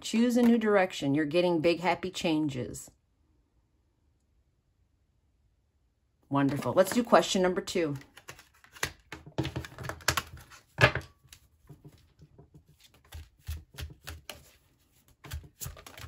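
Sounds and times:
cards being shuffled: 0:07.9 - 0:16.0.

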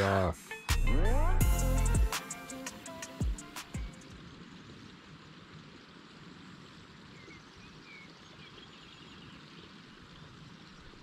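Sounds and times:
faint lakeside ambience: 0:02.1 - 0:11.0
faint bird chirps: 0:07.0 - 0:11.0.

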